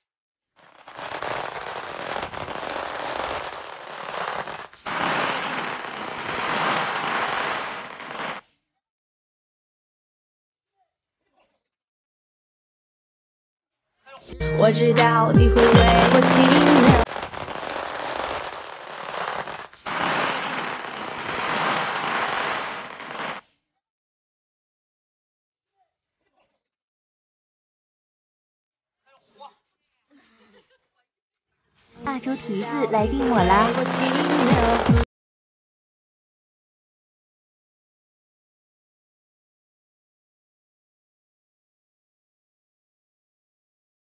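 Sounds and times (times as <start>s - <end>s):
firecrackers crackling: 0.6s - 8.5s, 15.1s - 23.4s, 32.1s - 35.1s.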